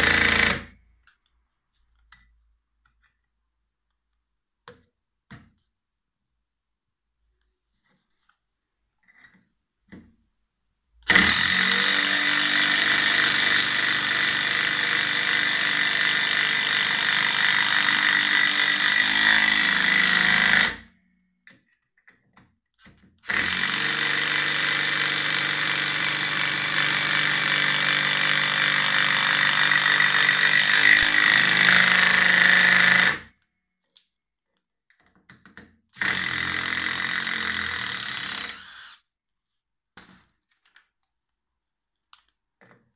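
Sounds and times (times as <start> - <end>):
impact driver driving screws: 23.2 - 33.2, 36.0 - 39.0.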